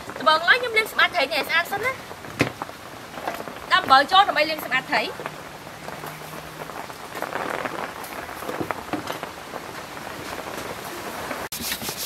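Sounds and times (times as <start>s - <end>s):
heavy rain: 0.0s - 11.6s
hands rubbing salt on fish: 11.5s - 12.0s.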